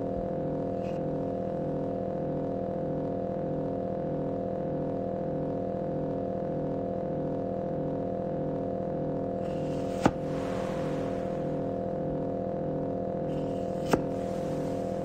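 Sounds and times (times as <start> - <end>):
electronic synth drone: 9.4 - 12.4.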